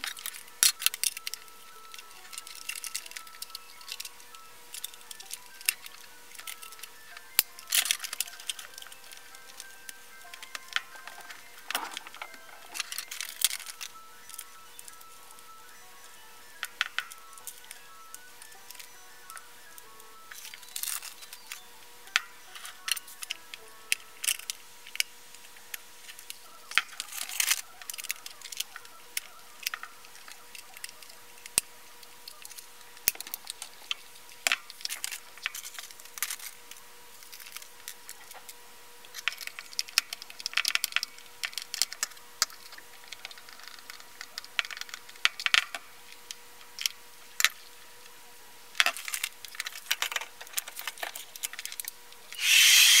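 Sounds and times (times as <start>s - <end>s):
faint steady hum: 0.0s - 53.0s
hair dryer rushing noise: 52.4s - 53.0s.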